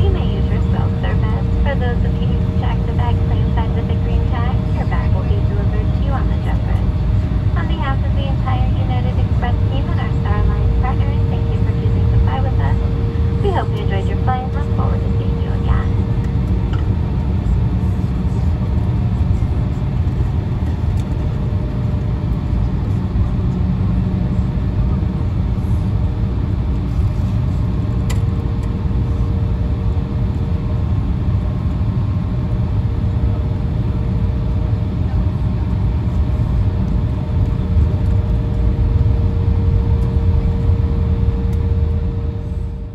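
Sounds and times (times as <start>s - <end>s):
aircraft cabin rumble taxiing: 0.0s - 42.9s
jet engines idling: 0.0s - 42.9s.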